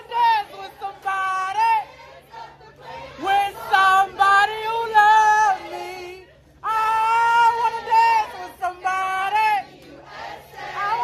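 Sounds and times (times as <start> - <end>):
woman singing loudly: 0.0 - 1.9, 3.2 - 9.6.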